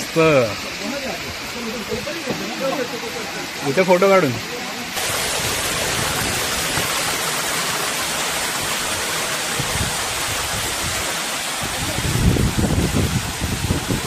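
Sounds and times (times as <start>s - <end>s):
running water: 0.0s - 14.0s.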